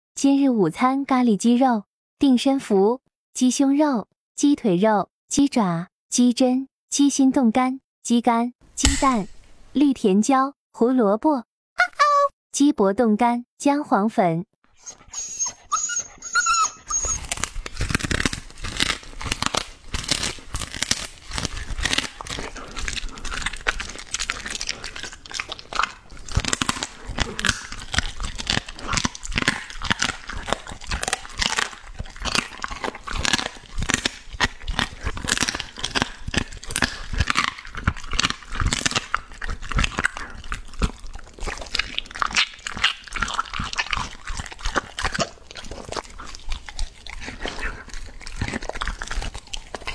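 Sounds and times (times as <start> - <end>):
dog whining: 14.8 - 17.6
dog crunching and chewing: 14.8 - 49.9.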